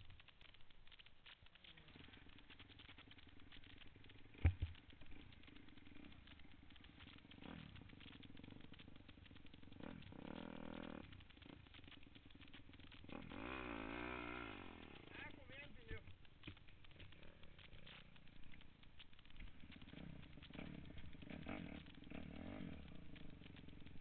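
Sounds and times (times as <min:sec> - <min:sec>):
dirt bike engines idling: 0:00.0 - 0:24.0
dirt bike revving: 0:01.9 - 0:24.0.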